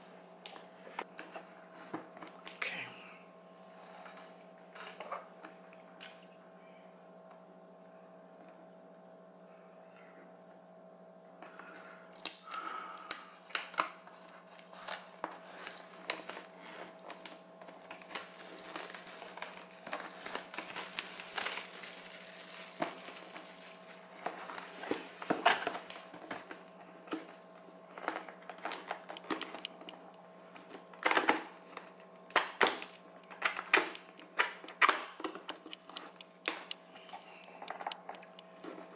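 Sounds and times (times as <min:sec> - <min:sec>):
low electrical hum: 0:00.0 - 0:38.9
packaging rustling and crinkling: 0:13.4 - 0:36.8.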